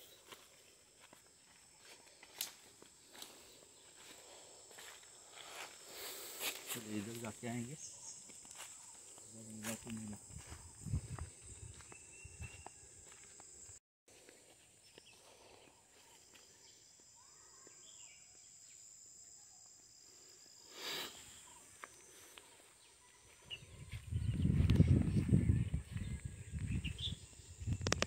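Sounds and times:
footsteps crunching on dry leaves: 0:00.2 - 0:07.4, 0:08.2 - 0:13.4
high-pitched insect drone: 0:00.3 - 0:13.8.

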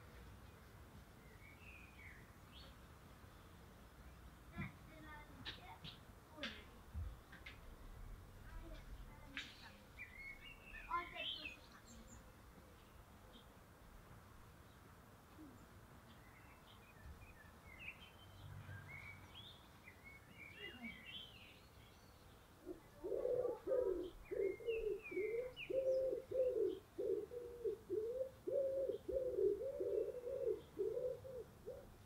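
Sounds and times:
songbirds chirping and twittering: 0:00.0 - 0:32.0
bird low cooing call: 0:22.6 - 0:32.0.

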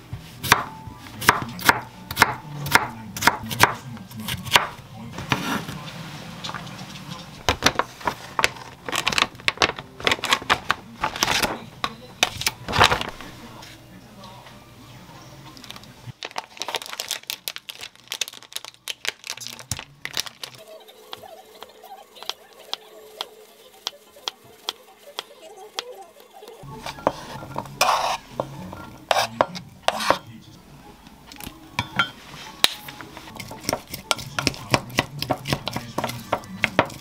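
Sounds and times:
knife cutting on wooden board: 0:26.9 - 0:30.2
spoon stirring in glass mug: 0:33.1 - 0:37.0.

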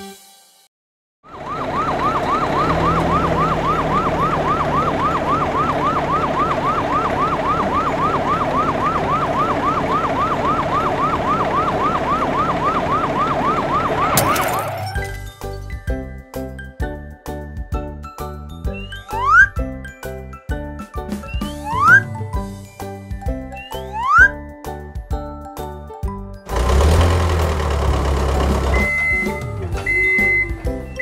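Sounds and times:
cartoon fire truck siren yelping: 0:01.3 - 0:15.2, 0:18.7 - 0:19.6, 0:21.3 - 0:22.2, 0:23.6 - 0:24.4, 0:28.7 - 0:31.0
engine rumble: 0:01.3 - 0:15.4, 0:26.5 - 0:31.0.

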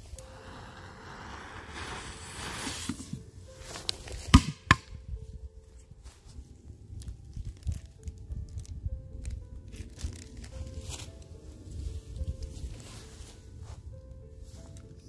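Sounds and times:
firecracker fuse sizzling: 0:00.0 - 0:04.7.

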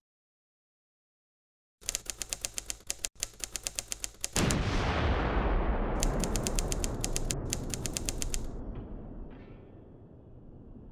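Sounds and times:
typewriter key clicks: 0:01.8 - 0:04.5, 0:06.0 - 0:08.5.

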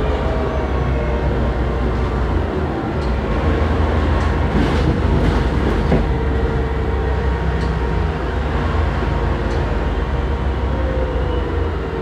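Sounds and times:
bus engine rumble: 0:00.0 - 0:12.0
bus body rattling: 0:02.8 - 0:07.9.

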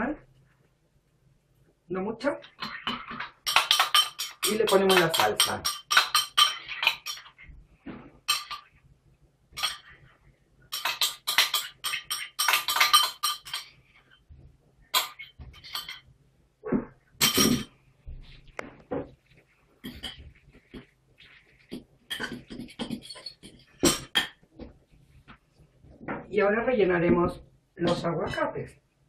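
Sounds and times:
fork and ceramic bowls clinking: 0:02.6 - 0:07.4, 0:08.2 - 0:08.7, 0:09.6 - 0:09.9, 0:10.7 - 0:13.8, 0:15.0 - 0:16.0.

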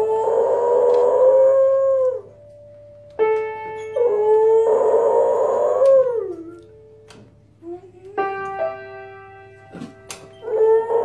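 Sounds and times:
dog howling: 0:00.0 - 0:02.4, 0:04.0 - 0:06.7, 0:10.4 - 0:11.0
piano notes: 0:00.0 - 0:11.0.

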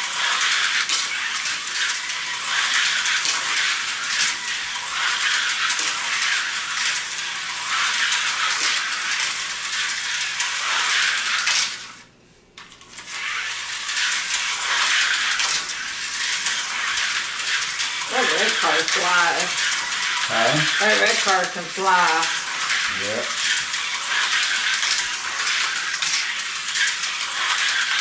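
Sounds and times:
slot cars buzzing on track: 0:13.1 - 0:28.0.

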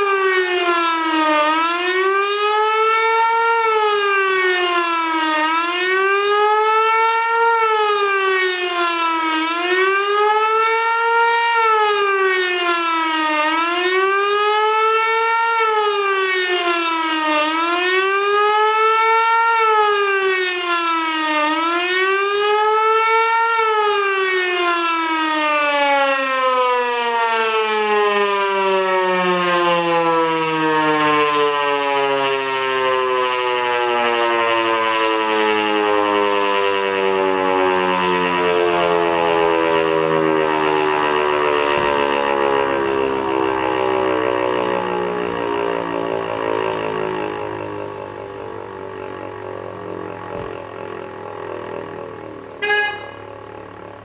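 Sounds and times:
siren wailing: 0:00.0 - 0:54.0
siren rotor coasting down: 0:27.2 - 0:54.0.

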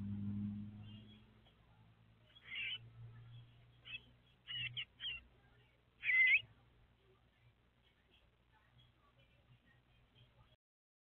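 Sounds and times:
bird giving short high calls: 0:06.0 - 0:06.4.

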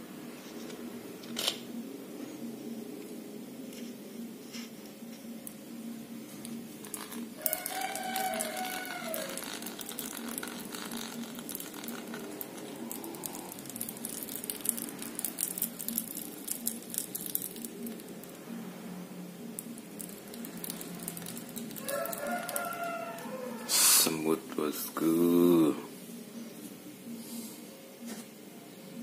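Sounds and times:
small reel parts clicking: 0:06.4 - 0:18.4, 0:19.6 - 0:23.3
rooster crowing: 0:07.4 - 0:10.0, 0:21.8 - 0:23.8.

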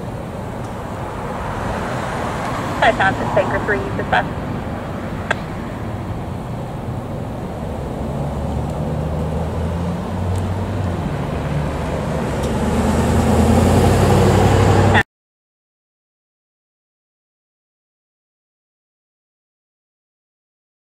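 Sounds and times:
passing vehicle engine hum: 0:00.0 - 0:15.0
tyre and road noise: 0:00.0 - 0:15.0.

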